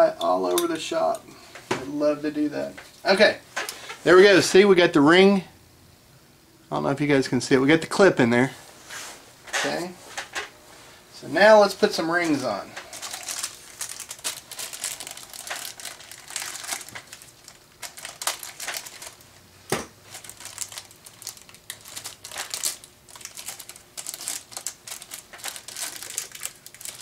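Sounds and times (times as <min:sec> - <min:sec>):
packaging crinkling: 0:12.2 - 0:27.0.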